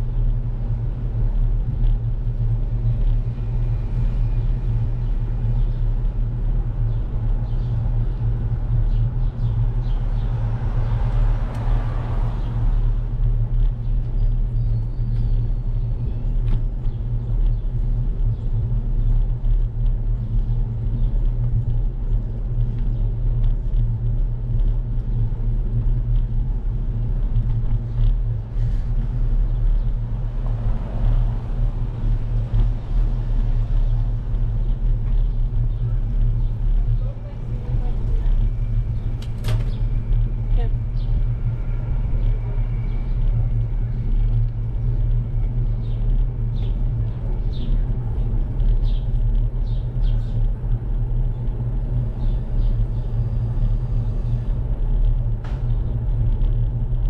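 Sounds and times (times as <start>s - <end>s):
road vibration: 0.0s - 57.0s.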